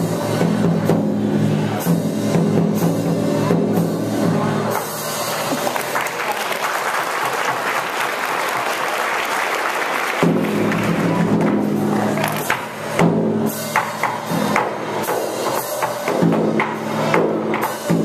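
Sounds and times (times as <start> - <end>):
music with drums and percussion: 0.0 - 8.7, 10.0 - 18.0
audience clapping: 5.3 - 12.8.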